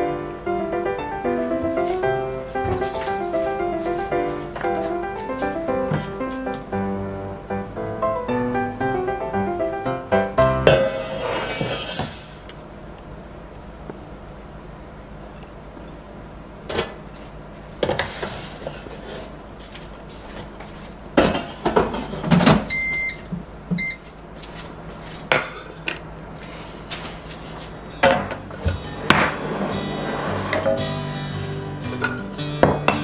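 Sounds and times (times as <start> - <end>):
air fryer control beeps: 22.7 - 24.1
dish and basket clunking: 28.0 - 29.4.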